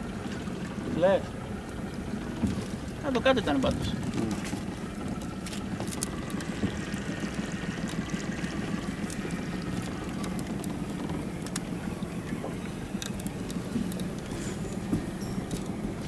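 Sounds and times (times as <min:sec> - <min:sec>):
boat engine low rumble: 0:00.0 - 0:16.0
water sloshing against hull: 0:00.0 - 0:16.0.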